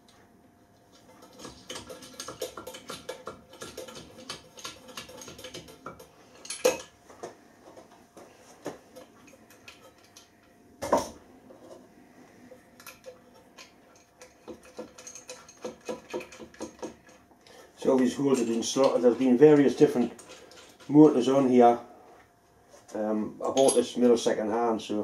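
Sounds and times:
metal bolts clinking on metal plate: 23.5 - 23.9.

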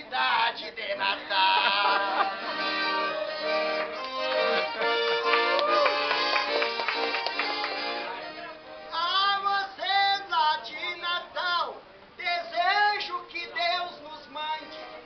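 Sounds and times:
man singing: 0.0 - 3.7, 8.2 - 15.0
piano accordion: 1.7 - 9.4, 13.6 - 15.0.

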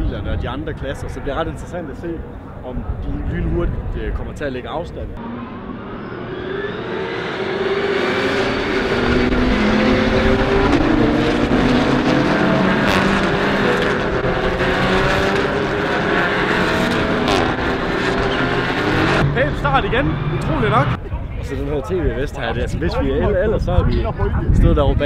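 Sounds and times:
race cars driving past: 5.2 - 21.5.

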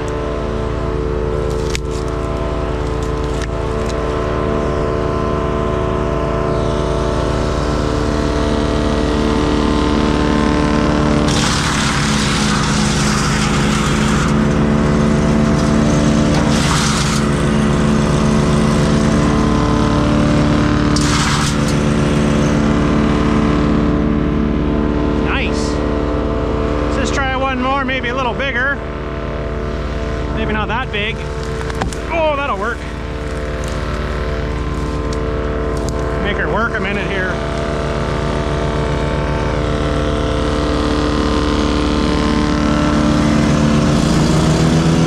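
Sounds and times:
wood chipper engine running: 0.0 - 45.0
branches being chipped: 1.5 - 4.0, 11.2 - 18.8, 20.8 - 22.0, 31.2 - 36.1.

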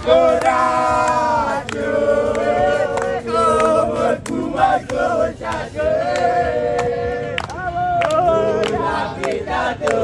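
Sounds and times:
crowd singing a chant: 0.0 - 10.0.

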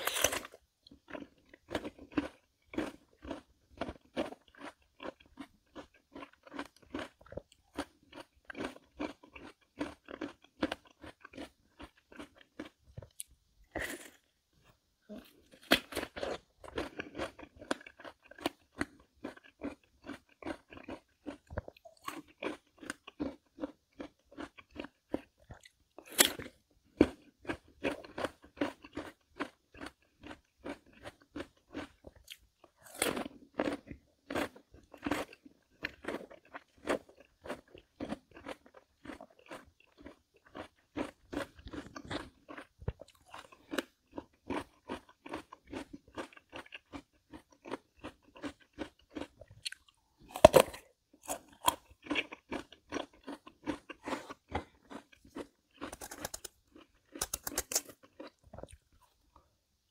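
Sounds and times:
melon being bitten and chewed: 0.0 - 14.3, 15.1 - 59.2.

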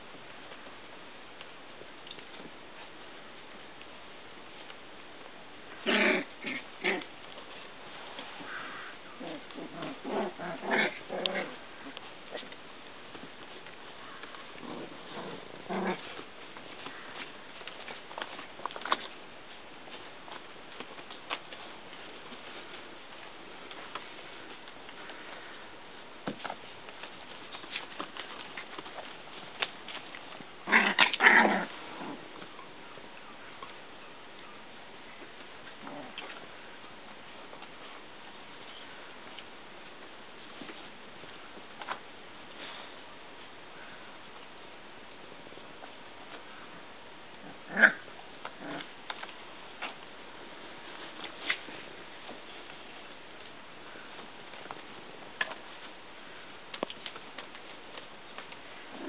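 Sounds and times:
puppies growling and yapping: 5.7 - 7.6, 9.1 - 12.6, 14.2 - 19.0, 30.6 - 32.9, 47.4 - 49.3.

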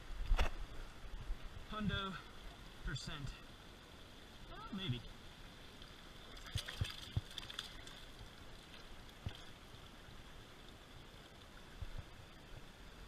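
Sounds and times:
rocky creek running: 0.5 - 13.0
soft splashes in water: 5.8 - 9.9.

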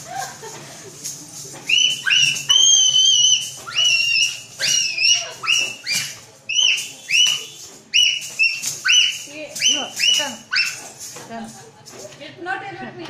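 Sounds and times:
high-pitched whining calls: 1.7 - 11.0.

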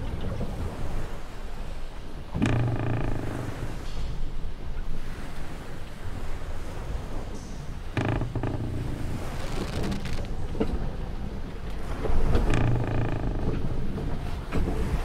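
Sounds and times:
wind: 0.0 - 15.0
sea washing: 0.5 - 15.0
wooden ship timbers creaking: 2.2 - 4.4, 7.5 - 11.1, 11.8 - 14.9
short wooden knocks: 2.4 - 3.9, 7.9 - 10.3, 12.4 - 13.6.

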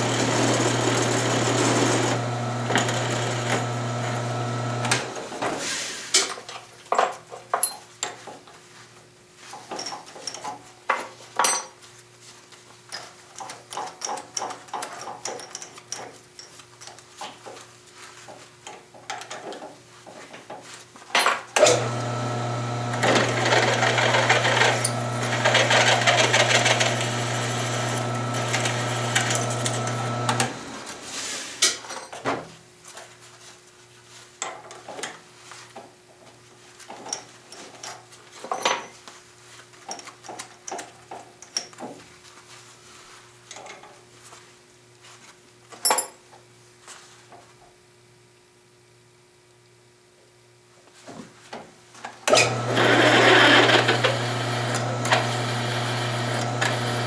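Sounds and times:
drill press humming: 0.0 - 5.1, 21.6 - 31.0, 52.3 - 57.0
small metallic clicks and clinks: 7.5 - 8.2, 12.9 - 17.0, 45.8 - 46.2
drill bit cutting steel: 52.4 - 57.0.

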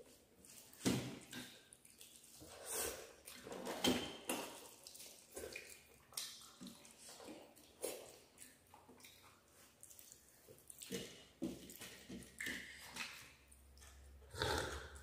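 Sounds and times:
hands squishing rice and curry: 0.0 - 3.7, 4.4 - 14.2
wet chewing: 4.6 - 15.0.

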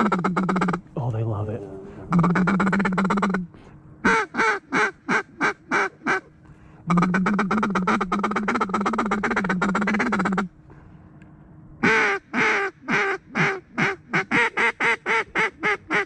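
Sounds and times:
duck call quacks: 0.0 - 0.8, 2.1 - 6.3, 6.9 - 10.5, 11.8 - 16.0
rattling duck feed call: 2.1 - 3.4.

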